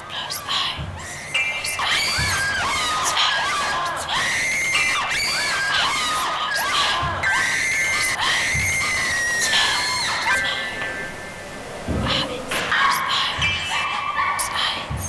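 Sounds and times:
people screaming in fright: 0:00.2 - 0:11.4.

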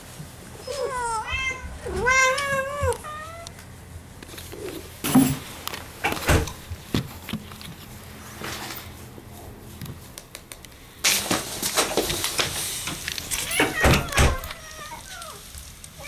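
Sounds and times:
cat meowing: 0:00.6 - 0:03.5, 0:13.4 - 0:15.5.

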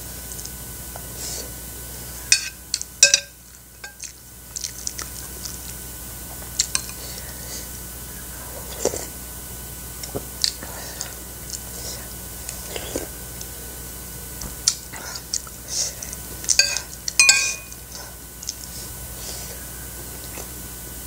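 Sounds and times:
spoon clinking on ceramic bowl: 0:02.3 - 0:04.0, 0:16.6 - 0:17.8
chewing: 0:03.5 - 0:07.4, 0:08.4 - 0:09.2, 0:10.0 - 0:13.5, 0:14.6 - 0:20.6.

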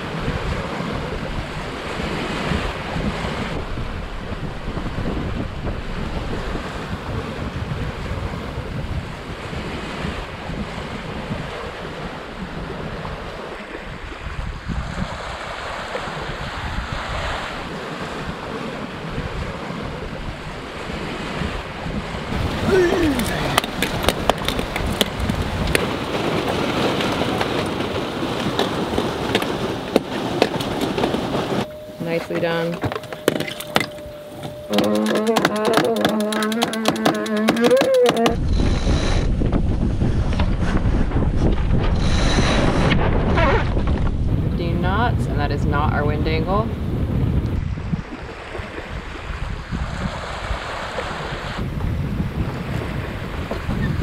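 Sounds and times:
water rushing along boat hull: 0:00.0 - 0:54.0
wind buffeting microphone: 0:00.0 - 0:54.0
sharp ticks and splashes: 0:23.1 - 0:31.0, 0:33.2 - 0:38.7.

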